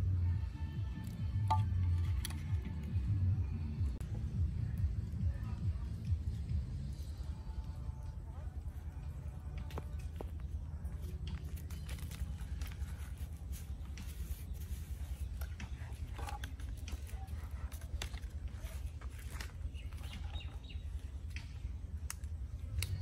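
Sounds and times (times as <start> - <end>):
steady low rumble: 0.0 - 16.1
skewers tapping and rustling on leaves: 0.6 - 3.0, 7.4 - 23.0.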